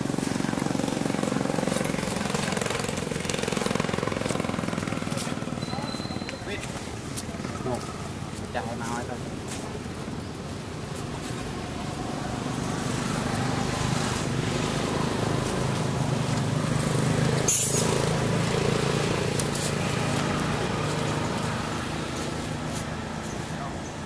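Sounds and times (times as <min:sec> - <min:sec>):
vehicle engine passing: 0:00.0 - 0:06.0, 0:11.2 - 0:23.8.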